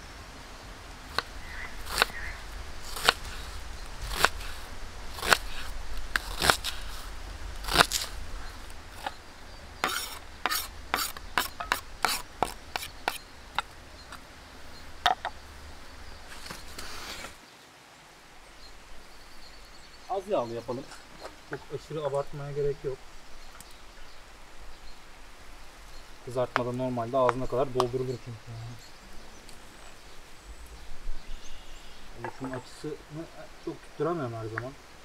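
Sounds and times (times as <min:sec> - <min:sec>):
knife scraping into metal bowl: 0:09.8 - 0:13.2.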